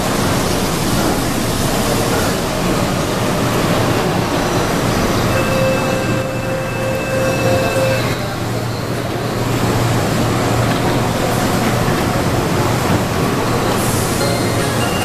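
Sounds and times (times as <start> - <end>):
electric train humming: 0.0 - 15.0
held tone: 5.3 - 8.3, 14.2 - 15.0.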